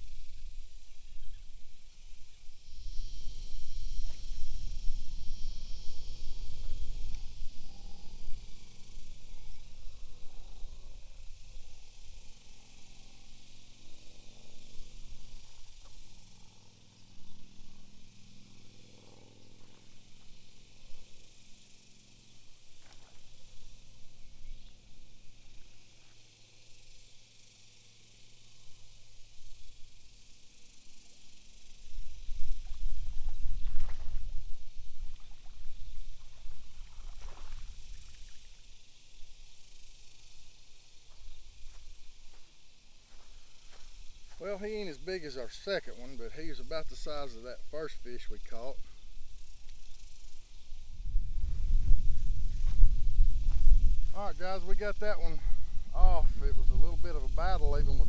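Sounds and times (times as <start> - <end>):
low motor drone: 2.5 - 26.0.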